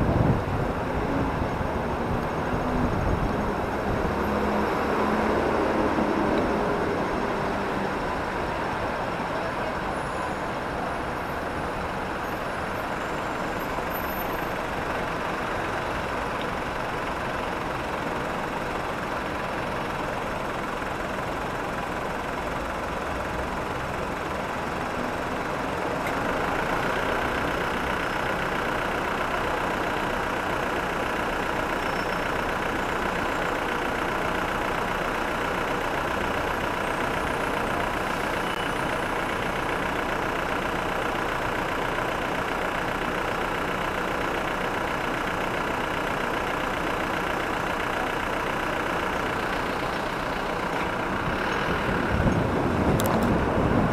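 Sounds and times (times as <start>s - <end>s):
close low engine hum: 0.0s - 53.9s
traffic engines idling: 0.0s - 53.9s.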